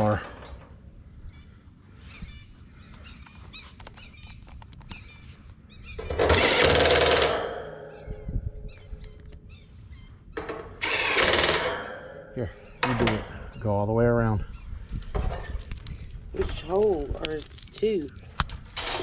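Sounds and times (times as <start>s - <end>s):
handling clicks: 3.2s - 5.1s
impact driver driving screws: 6.2s - 7.4s, 10.8s - 11.8s.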